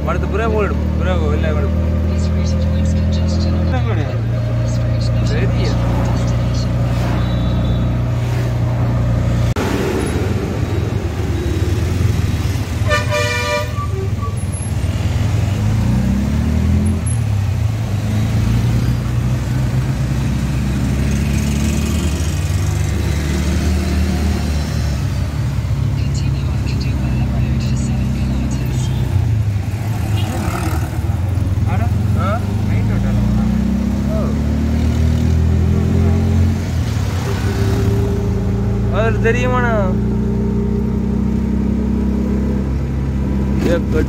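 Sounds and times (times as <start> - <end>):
auto-rickshaw engine running: 0.0 - 44.0
vehicle horn: 7.2 - 8.1, 12.8 - 14.4.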